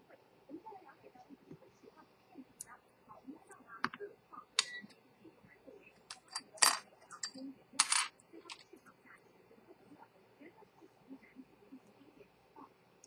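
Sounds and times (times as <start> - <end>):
small metal clicks and taps: 6.1 - 8.6.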